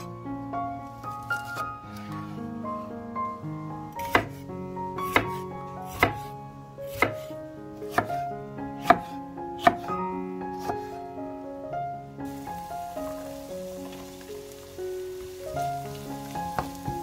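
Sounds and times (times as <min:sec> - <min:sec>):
background music: 0:00.0 - 0:17.0
knife chopping on cutting board: 0:04.0 - 0:04.4, 0:05.0 - 0:06.3, 0:06.9 - 0:07.3, 0:07.9 - 0:08.2, 0:08.8 - 0:09.9.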